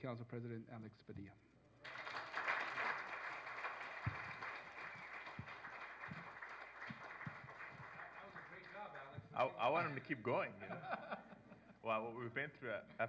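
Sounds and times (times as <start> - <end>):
audience applauding: 1.8 - 9.5.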